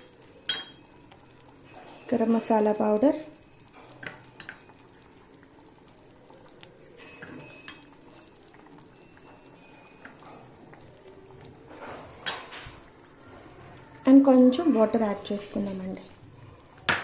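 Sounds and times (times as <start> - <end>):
spatula tapping a pan: 0.0 - 1.0
gravy simmering in a pan: 0.0 - 17.0.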